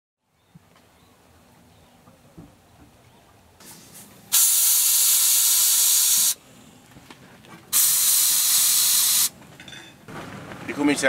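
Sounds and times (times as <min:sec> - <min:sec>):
air hissing out of tyre: 0:03.6 - 0:06.4, 0:07.7 - 0:09.3.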